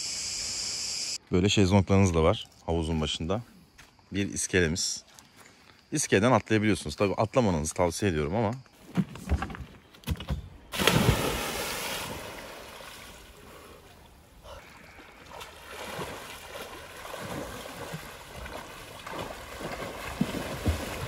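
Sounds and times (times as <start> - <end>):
water splashing and rushing: 10.8 - 21.0.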